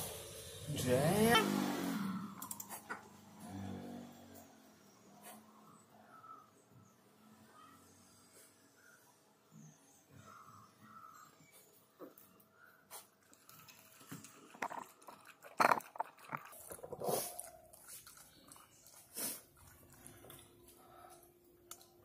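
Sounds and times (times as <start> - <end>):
dog lapping from plastic bowl: 13.7 - 20.5.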